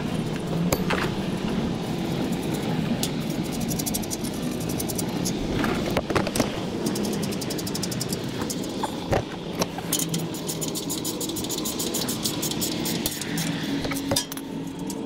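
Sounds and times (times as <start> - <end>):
low motor hum: 0.0 - 15.0.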